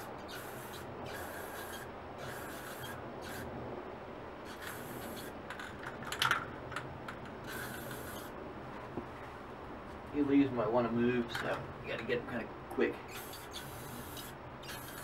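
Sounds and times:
spray paint can hissing: 0.0s - 3.5s, 4.5s - 5.3s, 7.5s - 8.3s, 13.1s - 15.0s.

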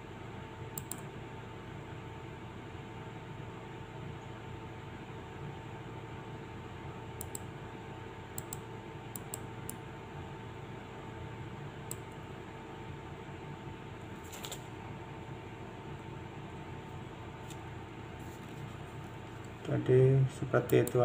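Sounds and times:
computer fan hum: 0.0s - 21.0s
computer mouse clicks: 0.8s - 1.1s, 7.2s - 7.5s, 8.4s - 9.8s, 11.9s - 12.2s, 20.7s - 21.0s.

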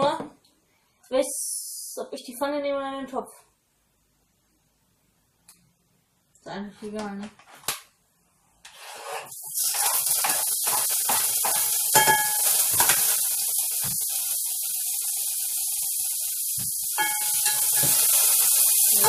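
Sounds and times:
utensil scraping a pan: 8.7s - 13.0s
tofu sizzling in hot oil: 9.3s - 19.0s.

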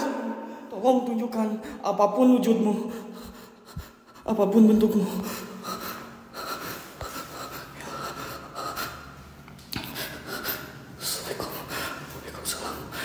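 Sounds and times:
man breathing quickly: 2.9s - 4.3s, 5.2s - 12.2s.

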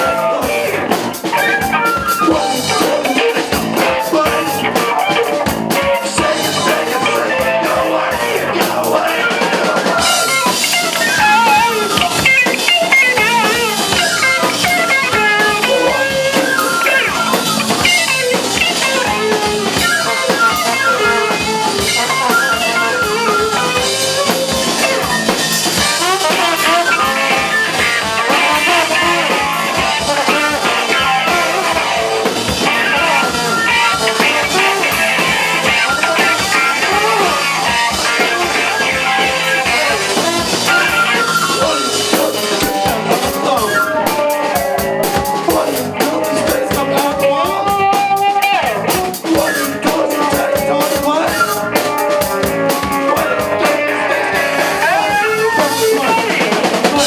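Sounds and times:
drum kit: 0.0s - 57.0s
electric guitar: 0.0s - 57.0s
flute: 32.7s - 42.7s, 53.1s - 56.4s.

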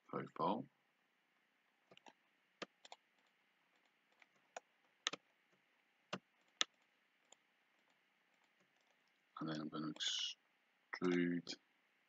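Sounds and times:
computer mouse clicking: 1.9s - 5.2s, 6.1s - 9.2s.

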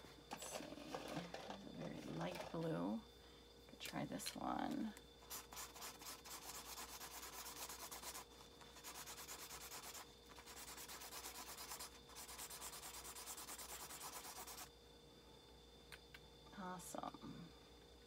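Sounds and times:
marker scribbling on paper: 5.2s - 14.7s.

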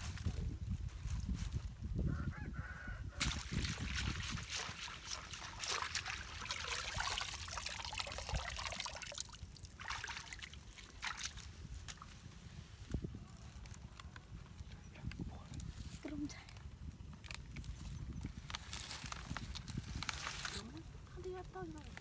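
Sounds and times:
muddy water splashing: 3.2s - 12.2s.

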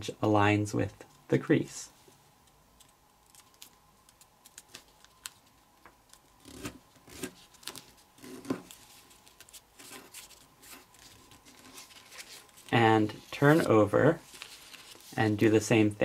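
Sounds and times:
paper rustling and crinkling: 2.8s - 15.5s.

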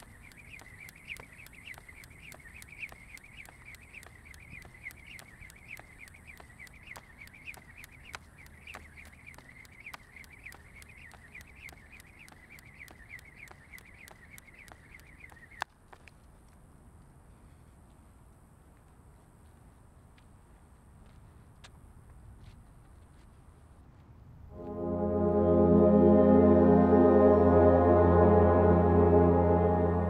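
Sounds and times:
skipping rope whirring: 0.0s - 16.4s
skipping rope ticking on concrete: 0.0s - 16.7s.

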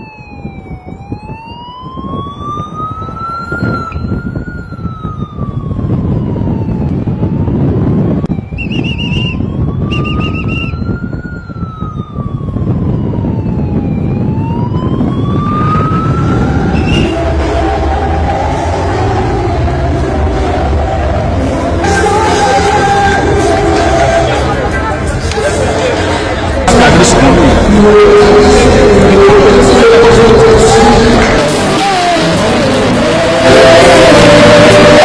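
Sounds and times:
higher siren warbling: 0.0s - 24.5s
siren wailing: 0.0s - 24.6s, 26.7s - 35.0s
noisy rumble: 11.4s - 35.0s.

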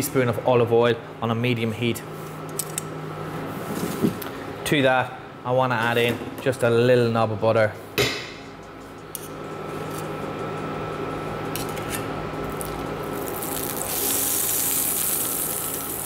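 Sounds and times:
butter sizzling in frying pan: 12.6s - 16.0s.

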